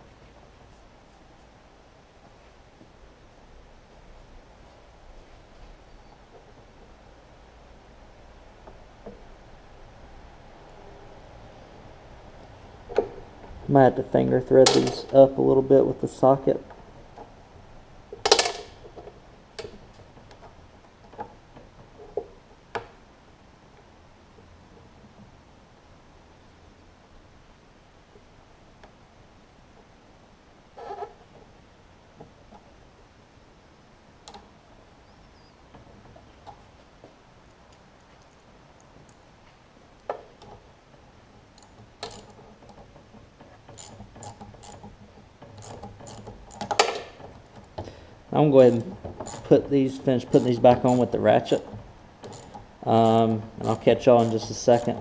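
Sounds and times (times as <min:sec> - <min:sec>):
screws clicking against metal: 0:41.6 - 0:42.4, 0:43.8 - 0:44.9, 0:45.6 - 0:46.9, 0:48.6 - 0:49.6, 0:50.3 - 0:55.0.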